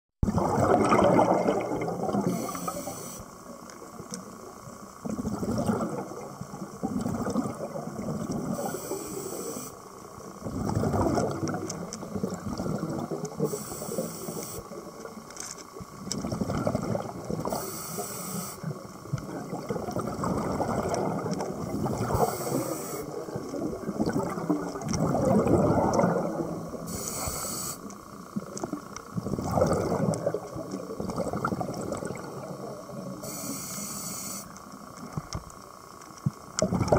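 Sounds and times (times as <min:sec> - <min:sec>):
bubbling exhalations: 0:00.2 - 0:02.6, 0:05.0 - 0:08.8, 0:10.4 - 0:14.0, 0:16.2 - 0:17.6, 0:19.2 - 0:26.9, 0:28.6 - 0:33.0, 0:36.6 - 0:36.9
regulator hissing inhalations: 0:02.3 - 0:03.4, 0:08.6 - 0:09.8, 0:13.4 - 0:14.8, 0:17.5 - 0:18.7, 0:22.1 - 0:23.1, 0:26.8 - 0:27.9, 0:33.2 - 0:34.5.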